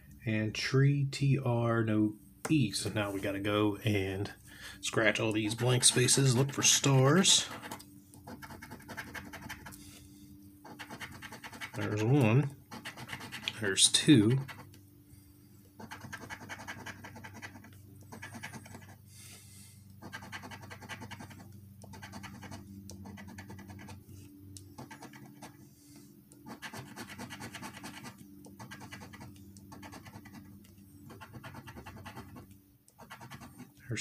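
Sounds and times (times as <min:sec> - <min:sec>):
coin scratching lottery ticket: 0:05.0 - 0:09.8, 0:10.6 - 0:14.8, 0:15.8 - 0:19.1, 0:20.0 - 0:24.0, 0:24.8 - 0:25.6, 0:26.4 - 0:33.8.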